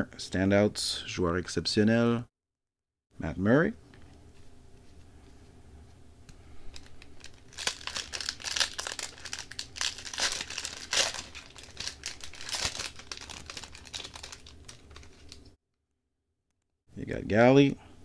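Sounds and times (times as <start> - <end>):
plastic wrapper crinkling: 6.6 - 15.6.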